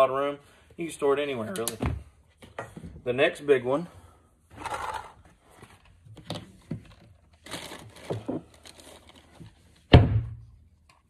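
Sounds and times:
rustling and crinkling gear: 4.5s - 9.9s.

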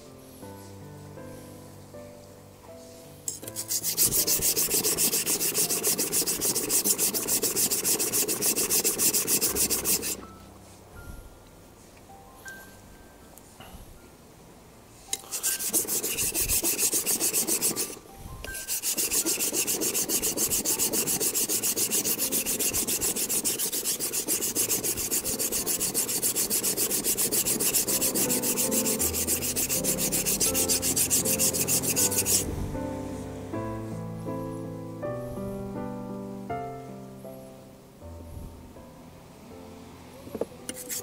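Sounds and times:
knife scraping on whetstone: 3.3s - 10.2s, 15.1s - 32.5s, 40.7s - 41.0s.

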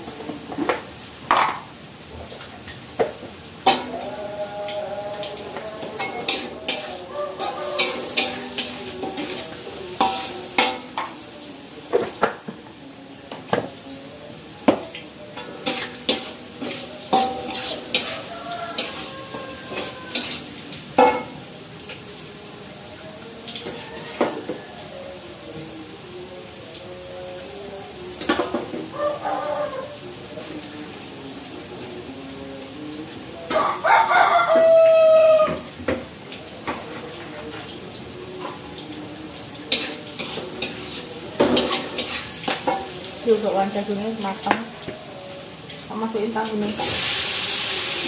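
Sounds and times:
food sizzling: 0.0s - 48.0s
metal spatula scraping wok: 6.0s - 11.2s, 15.5s - 21.2s.

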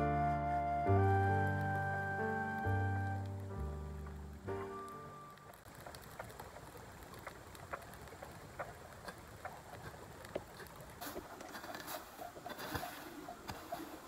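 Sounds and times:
brush fire crackling: 0.2s - 14.0s
hoe scraping dry grass and soil: 9.0s - 14.0s.

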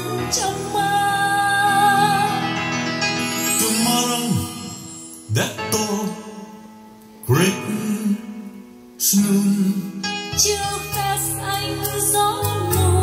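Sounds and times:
recorded music through speakers: 0.0s - 13.0s.

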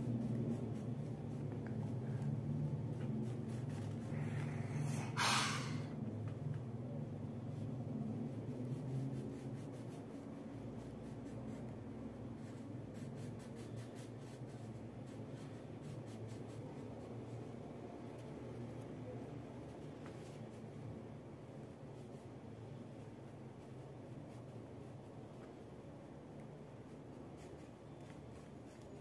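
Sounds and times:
crayon scratching on paper: 0.0s - 5.2s, 7.5s - 17.4s
short rush of noise: 5.0s - 5.9s.

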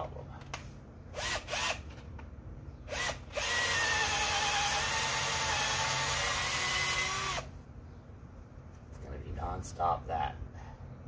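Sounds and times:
drill boring into wood: 1.2s - 1.8s, 2.9s - 7.5s.

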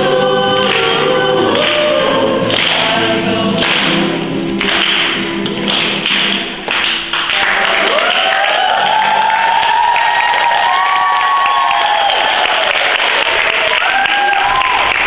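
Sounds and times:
girls singing: 0.0s - 4.4s
acoustic guitar: 0.0s - 7.8s
audience whooping and cheering: 7.4s - 15.0s.

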